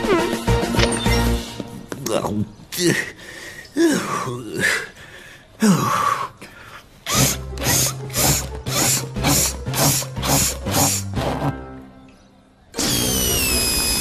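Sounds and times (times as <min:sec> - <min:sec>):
man grunting and mumbling: 0:02.1 - 0:05.0.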